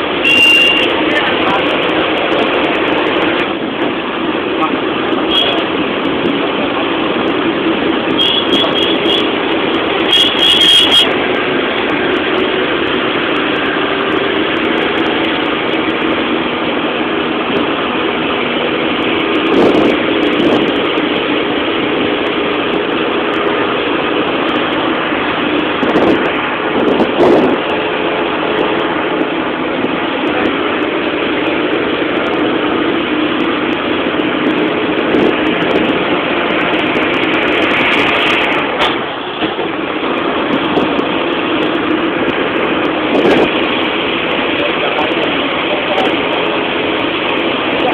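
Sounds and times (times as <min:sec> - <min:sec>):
vehicle engine and road noise: 0:00.0 - 0:47.9
quick high beeps: 0:00.2 - 0:00.9.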